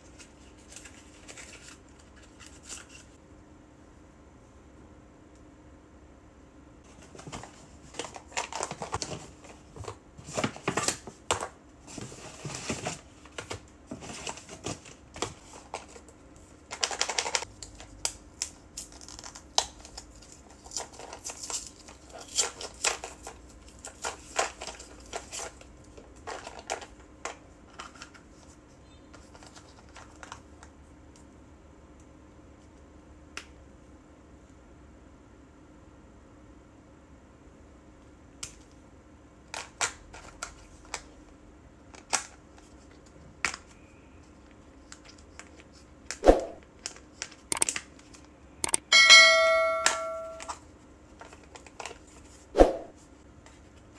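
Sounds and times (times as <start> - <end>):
packaging rustling and crinkling: 0.0 - 3.2, 6.9 - 28.5.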